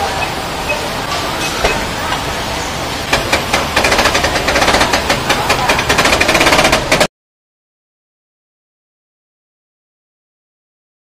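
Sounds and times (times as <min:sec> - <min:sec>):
sliding door mechanism rattling: 0:03.0 - 0:07.1.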